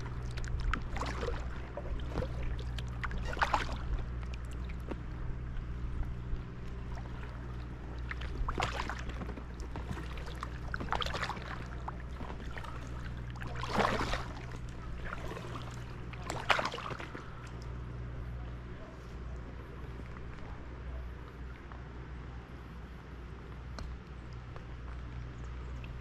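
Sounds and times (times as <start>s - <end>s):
paddle splashing in water: 0.0s - 5.1s, 6.7s - 17.7s.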